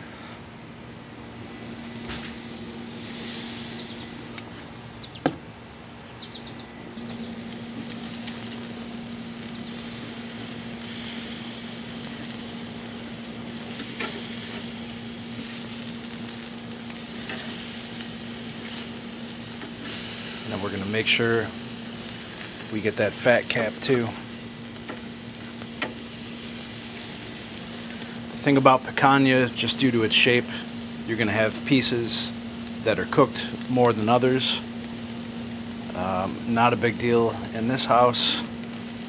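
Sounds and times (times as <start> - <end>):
steaks sizzling on a grill: 0.8 - 5.8, 6.7 - 39.0
metal tongs clicking on grate: 13.9 - 14.2.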